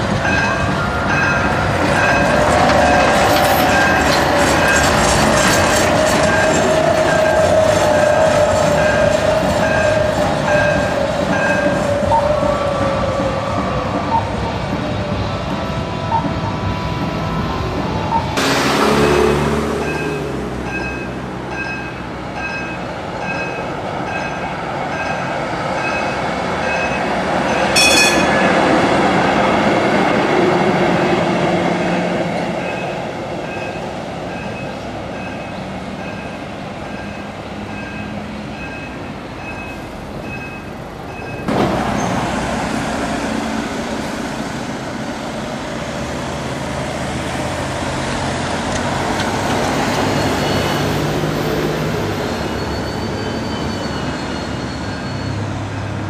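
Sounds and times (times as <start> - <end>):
road traffic noise: 0.0 - 56.0
tram rolling on rails: 0.0 - 56.0
tram bell ring: 0.2 - 12.4, 15.5 - 28.9, 32.6 - 42.1.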